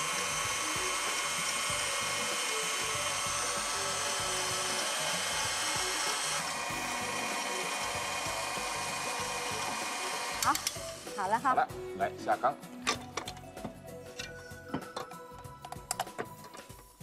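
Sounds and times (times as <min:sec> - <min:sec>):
stand mixer motor whining: 0:00.0 - 0:11.2.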